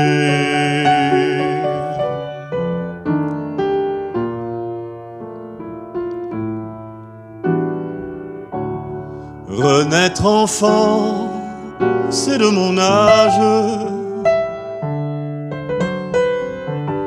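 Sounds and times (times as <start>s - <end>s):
man singing: 0.0s - 2.4s, 9.4s - 14.6s
upright piano chords: 0.0s - 17.0s.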